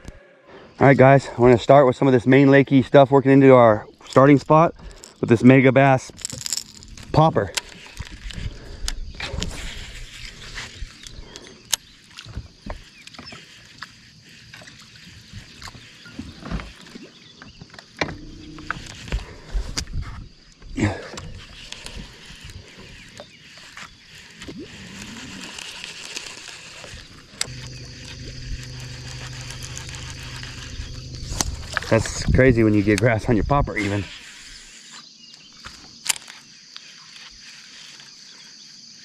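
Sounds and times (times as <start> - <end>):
electric motor humming: 18.0 - 19.4, 24.1 - 33.0
motor switch click: 27.4 - 32.1.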